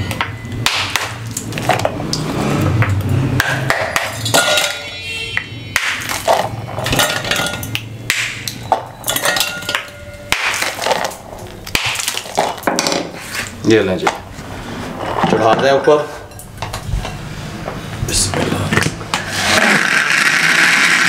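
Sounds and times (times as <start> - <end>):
steel bowl ringing: 4.0 - 5.2, 6.0 - 7.8, 8.6 - 11.1
ice knocking and cracking: 9.7 - 13.2.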